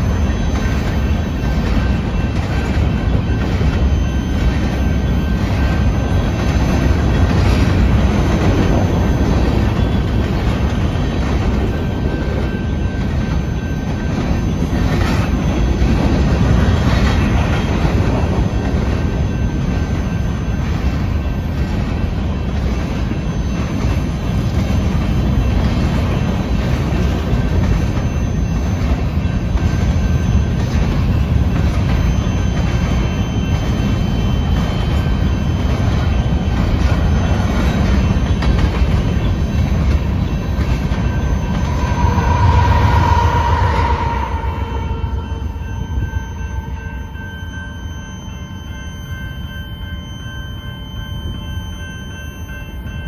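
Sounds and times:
train wheels rumbling on rails: 0.0 - 48.6
clickety-clack over rail joints: 0.1 - 41.6.

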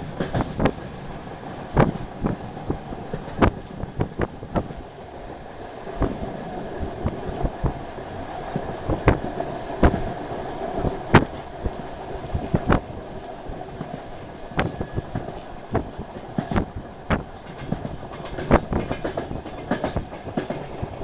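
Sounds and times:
train rumble and hum: 0.0 - 21.0.

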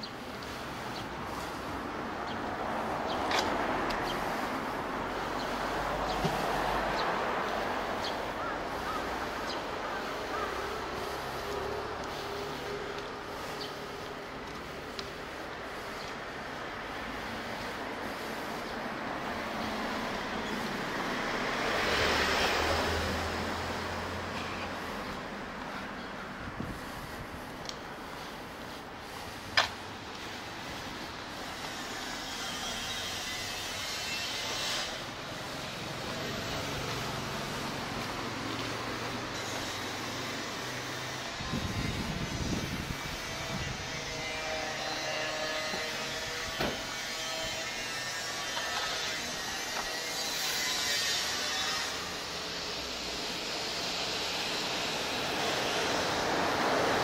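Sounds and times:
road and wind noise: 0.0 - 57.0
vehicle driving past: 19.2 - 25.5.

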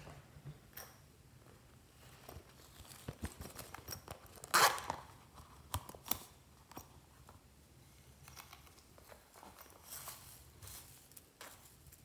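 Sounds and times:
zipper pulled open: 4.2 - 5.1.

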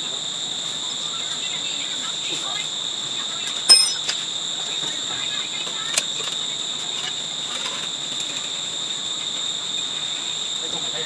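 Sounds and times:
insects trilling: 0.0 - 11.0
metal tool clinking: 3.7 - 4.1.

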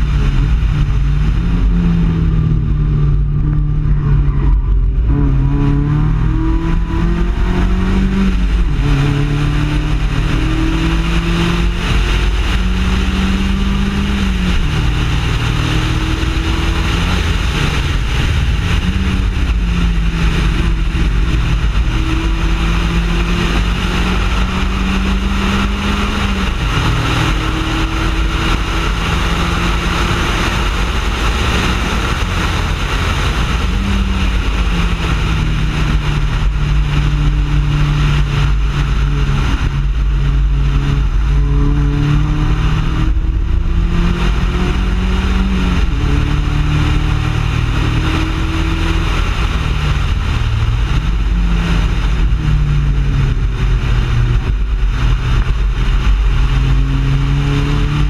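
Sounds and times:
race car engine running hard: 0.0 - 58.0.

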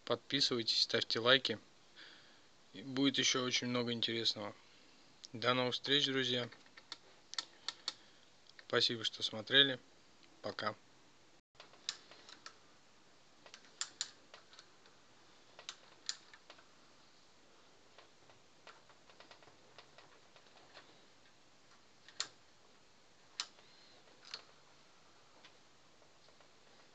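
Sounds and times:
ratchet metal clicks: 11.6 - 12.6, 13.5 - 14.7.

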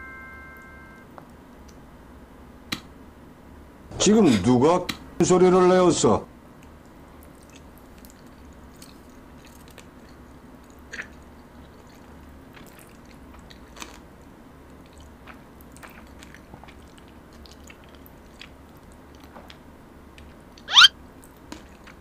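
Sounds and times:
low steady hum: 0.0 - 5.4
faint chewing and mouth sounds: 6.6 - 22.0.

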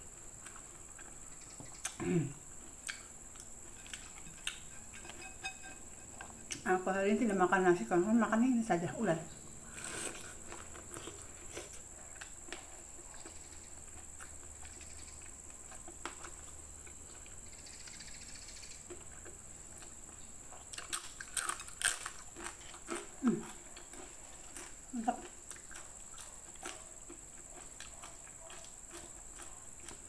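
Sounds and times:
quiet chewing: 0.2 - 6.7, 9.6 - 30.0
crisp crunching of cracker: 20.6 - 26.8.

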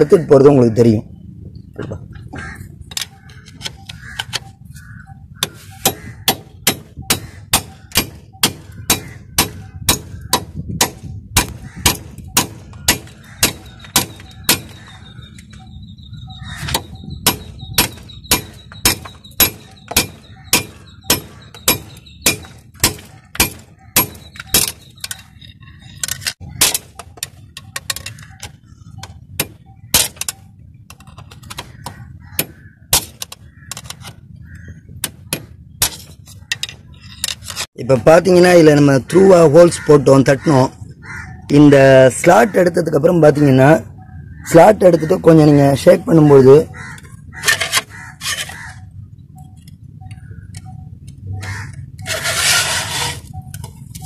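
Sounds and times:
hammer striking metal screwdriver: 16.6 - 25.4.

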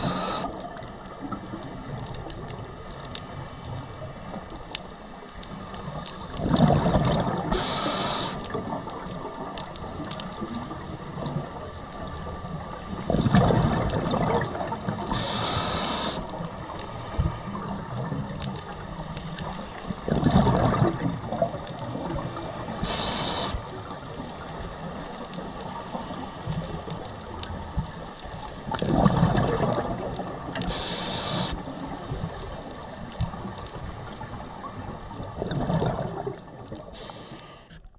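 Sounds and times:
diver breathing through regulator: 0.0 - 0.6, 7.5 - 8.6, 15.1 - 16.4, 22.8 - 23.8, 30.6 - 31.7, 36.9 - 37.9
bubbling exhaled air: 0.0 - 0.8, 6.4 - 8.8, 13.1 - 16.4, 20.0 - 23.7, 28.7 - 31.7, 35.1 - 37.9.

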